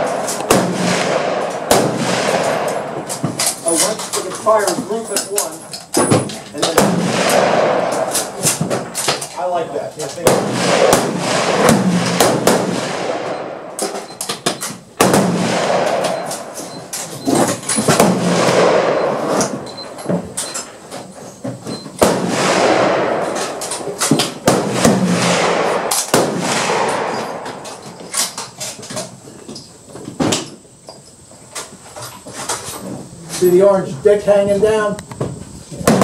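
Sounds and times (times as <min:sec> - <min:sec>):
gunshots with rolling echo: 0:00.0 - 0:04.2, 0:06.6 - 0:09.1, 0:10.2 - 0:13.8, 0:15.0 - 0:16.6, 0:17.9 - 0:19.6, 0:22.0 - 0:27.9
sharp small cracks: 0:00.0 - 0:19.5, 0:22.0 - 0:29.1.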